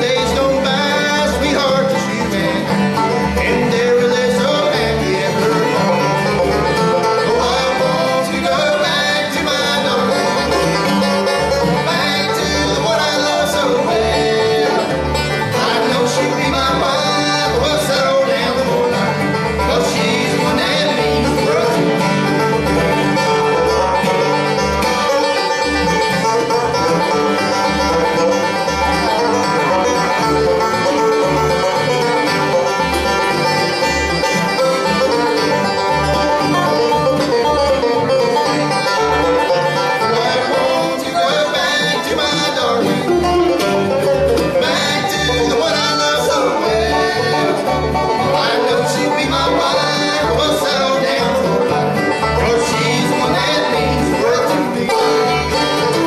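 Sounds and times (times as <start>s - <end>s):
bluegrass band playing: 0.0s - 56.0s.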